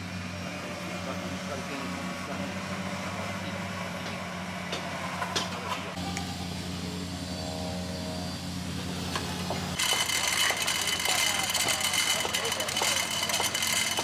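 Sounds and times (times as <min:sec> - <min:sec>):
motor humming: 0:06.0 - 0:14.0.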